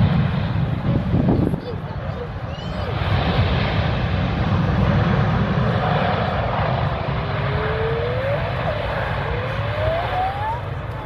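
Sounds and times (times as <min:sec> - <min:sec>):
jet engines rumbling: 0:00.0 - 0:11.0
rising engine whine: 0:02.9 - 0:11.0.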